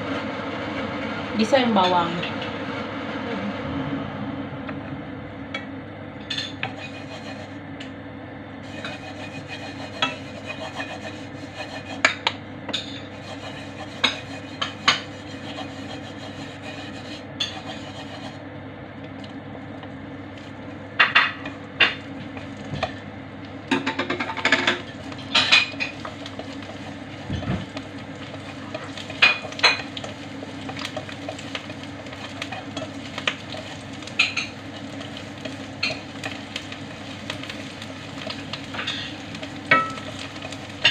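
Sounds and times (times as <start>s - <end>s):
steady hum: 0.0s - 40.9s
garlic sizzling in oil: 6.3s - 7.6s, 8.6s - 18.4s, 20.0s - 40.9s
chopsticks clicking and scraping pan: 6.5s - 7.6s, 8.7s - 18.4s, 24.1s - 40.9s.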